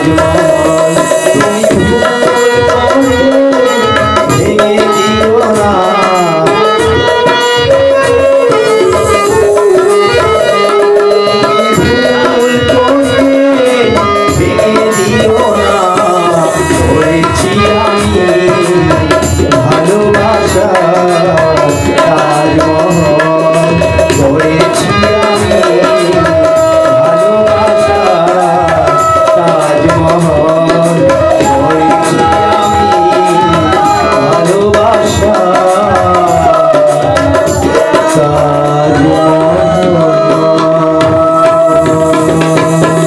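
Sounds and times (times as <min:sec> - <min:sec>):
harmonium: 0:00.0 - 0:43.0
man singing into a microphone: 0:00.0 - 0:43.0
tabla beating a rhythm: 0:00.0 - 0:43.0
bamboo flute: 0:06.9 - 0:13.1, 0:31.3 - 0:34.4, 0:41.0 - 0:43.0.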